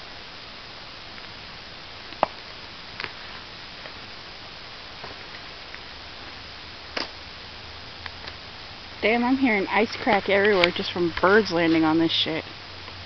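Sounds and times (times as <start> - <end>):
steady hiss: 0.0 - 13.0
person speaking: 9.0 - 12.5.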